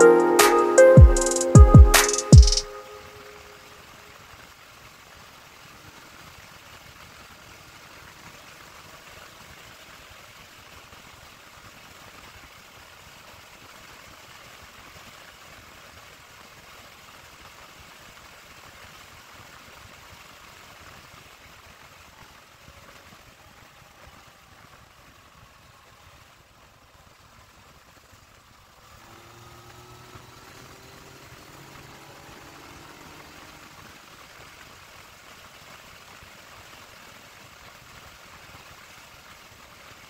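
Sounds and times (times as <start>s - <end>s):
motorcycle engine cruising: 28.8s - 34.2s.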